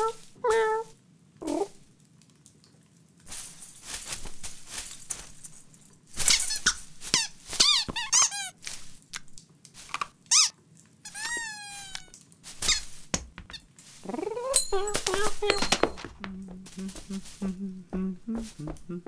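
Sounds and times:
rustling in tree branches: 3.3s - 10.5s, 11.1s - 19.0s
short high squeaks: 6.2s - 8.6s, 10.3s - 10.5s, 11.1s - 13.7s.

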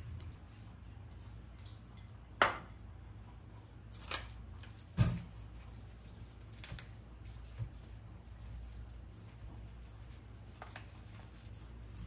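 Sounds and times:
bag of onions thudding on board: 4.9s - 5.4s.

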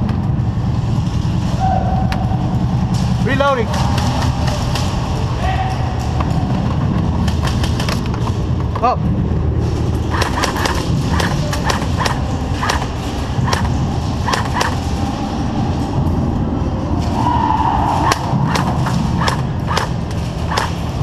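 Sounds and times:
low rumble: 0.0s - 21.0s
airsoft guns firing: 3.7s - 5.0s, 7.3s - 8.2s, 10.1s - 14.9s, 18.0s - 21.0s.

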